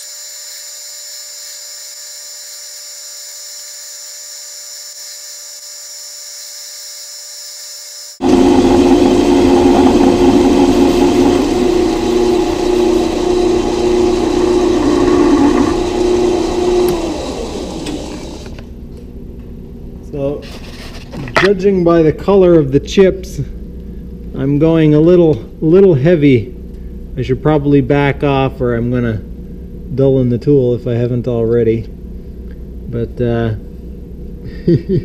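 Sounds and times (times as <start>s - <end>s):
metal lathe cutting steel: 8.2s - 18.6s.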